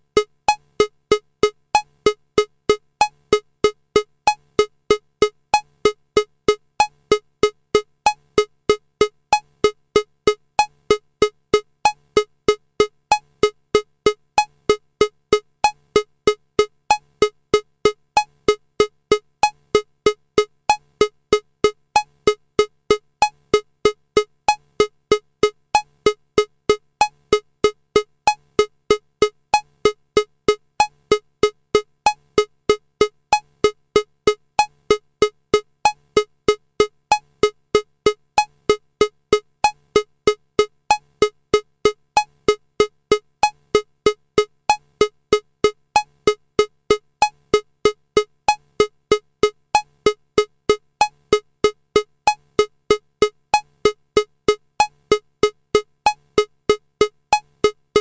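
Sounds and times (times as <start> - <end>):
electronic metronome clicking: 34.6 - 58.0.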